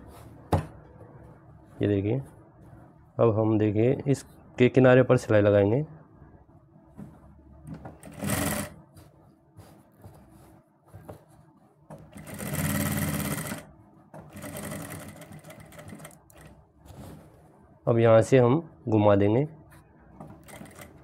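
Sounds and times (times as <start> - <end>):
sewing machine stitching: 8.0 - 8.8, 12.1 - 13.7, 14.3 - 16.5, 20.4 - 21.0.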